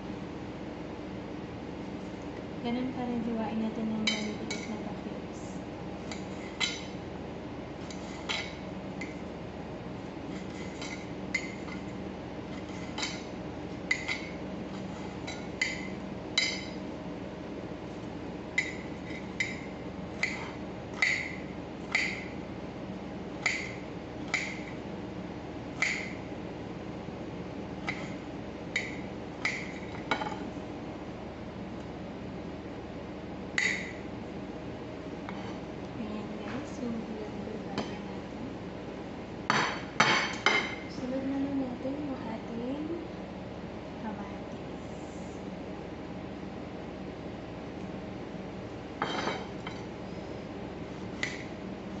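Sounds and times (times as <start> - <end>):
steady low hum: 0.0 - 52.0
knife clinking on ceramic plate: 49.0 - 49.9.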